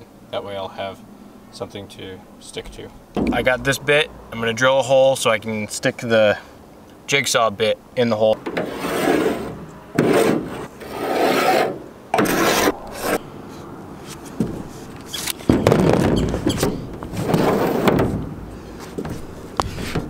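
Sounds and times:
wood scraping on metal roof: 8.4s - 13.2s, 14.2s - 20.0s.

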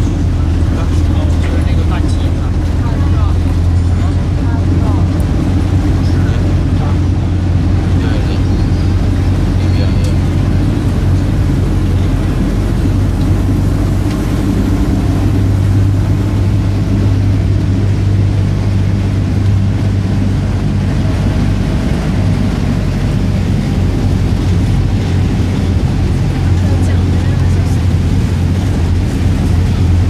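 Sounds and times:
road and traffic noise: 0.0s - 30.0s
vehicle engine running: 0.0s - 30.0s.

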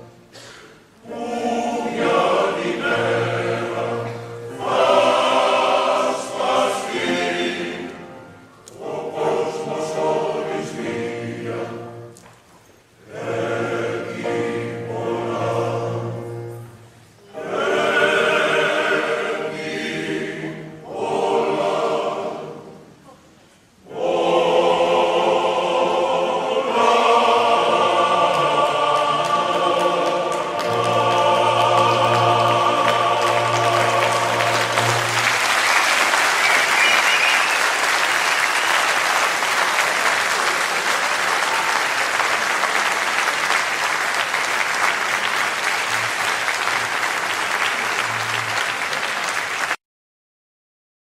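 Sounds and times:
choir singing held chords: 0.0s - 12.1s, 13.0s - 43.0s
audience applauding: 28.7s - 49.8s.

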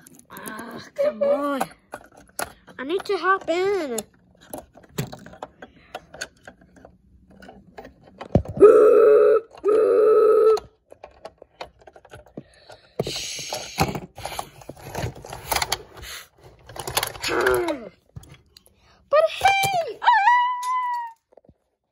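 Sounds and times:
plastic toys clicking and knocking: 0.0s - 8.6s, 10.5s - 21.8s
toy train whistle: 8.6s - 10.6s.

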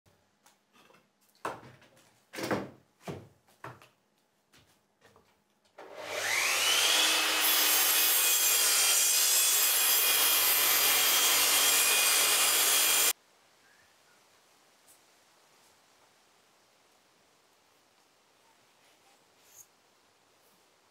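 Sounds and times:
mitre saw cutting wood: 5.8s - 13.1s.

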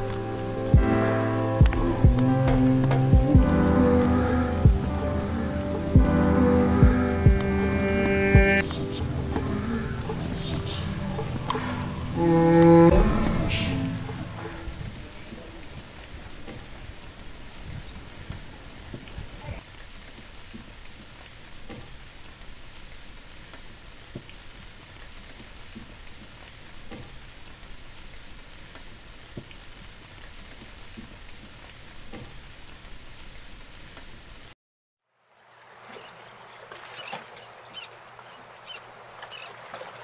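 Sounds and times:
steady water noise: 0.0s - 40.0s
plops and splashes in pond: 35.3s - 40.0s.

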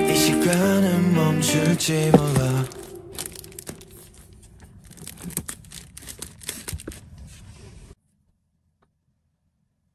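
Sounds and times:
books rustling on a shelf: 2.1s - 8.0s.

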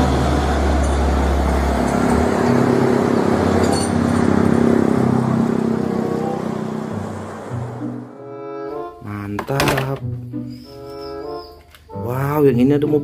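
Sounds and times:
trucks and vehicles driving past: 0.0s - 9.0s.

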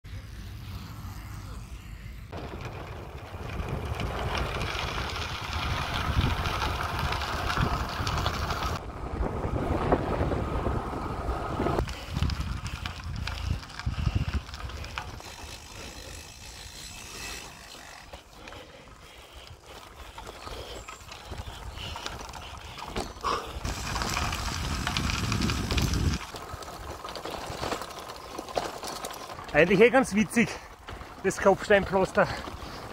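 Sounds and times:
bicycle tyres rumbling: 0.1s - 32.9s
tyres over cobblestones: 0.1s - 32.9s
wind buffeting microphone: 2.3s - 17.1s, 19.4s - 27.8s.

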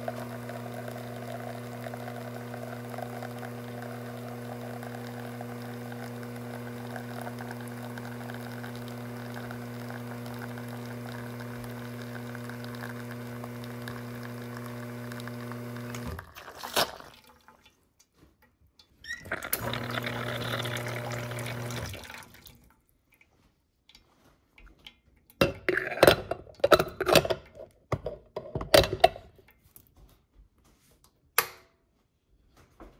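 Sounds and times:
espresso machine pump humming: 0.0s - 16.2s, 19.2s - 22.0s.

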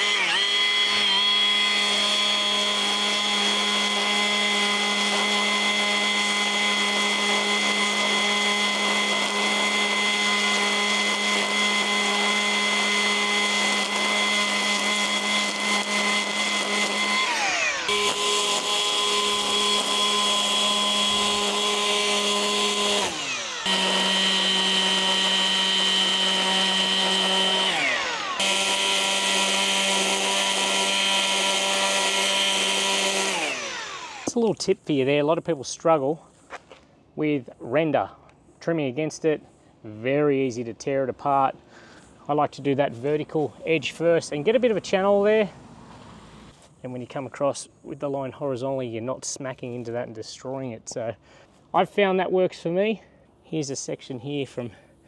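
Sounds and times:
line trimmer whining: 0.0s - 34.7s.

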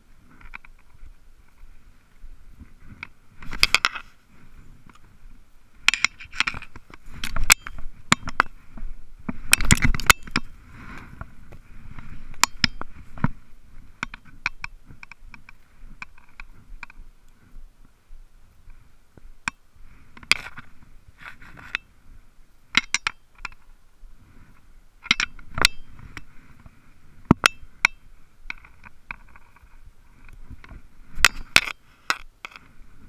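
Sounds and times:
dry brush rustling: 0.0s - 22.6s.

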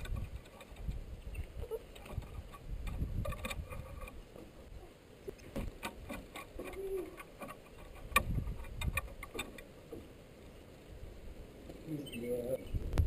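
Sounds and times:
dog claws on wooden deck: 5.3s - 10.1s.

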